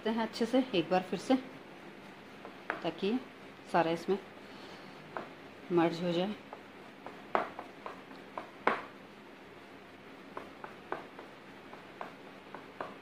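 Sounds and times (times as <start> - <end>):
whisk tapping against a bowl: 6.5 - 8.8, 10.3 - 13.0.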